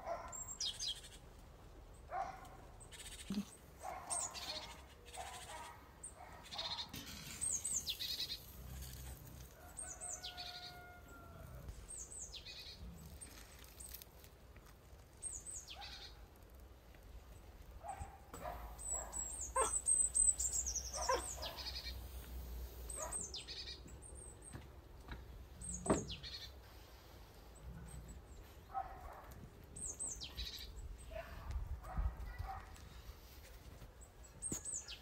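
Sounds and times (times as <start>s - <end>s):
small birds chirping: 0.0s - 14.3s, 15.0s - 35.0s
low animal calls: 19.5s - 19.9s.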